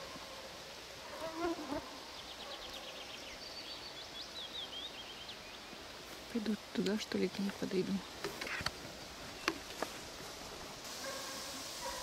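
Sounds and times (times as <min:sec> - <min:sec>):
faint forest background: 0:00.0 - 0:12.0
fly buzzing: 0:01.1 - 0:02.0.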